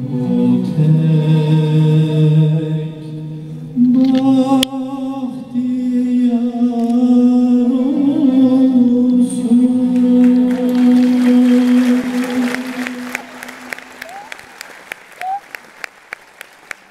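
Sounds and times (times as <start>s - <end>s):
man singing classical song: 0.0s - 13.8s
applause: 10.0s - 16.9s.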